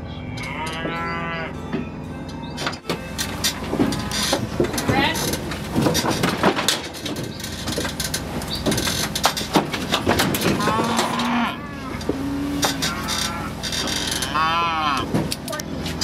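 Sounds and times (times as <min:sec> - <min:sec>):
cattle mooing: 0:00.2 - 0:01.6, 0:03.7 - 0:05.3, 0:10.4 - 0:15.2
metal clanks and knocks: 0:00.4 - 0:14.4.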